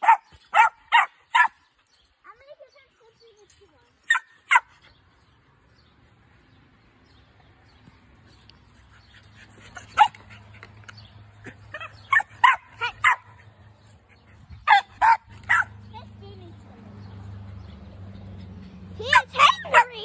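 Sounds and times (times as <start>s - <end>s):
puppy barking: 0.0s - 1.6s, 4.1s - 4.7s, 11.4s - 13.4s, 14.6s - 15.8s, 19.0s - 20.0s.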